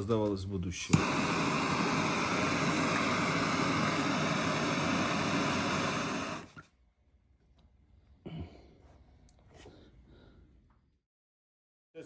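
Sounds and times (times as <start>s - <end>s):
gas torch hissing: 0.0s - 6.6s
torch ignition click: 0.2s - 6.6s.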